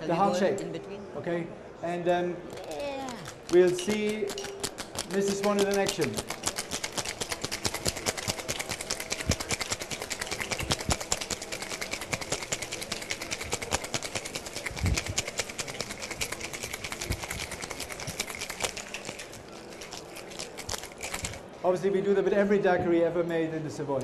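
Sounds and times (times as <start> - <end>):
ice rattling in cocktail shaker: 2.6 - 21.5.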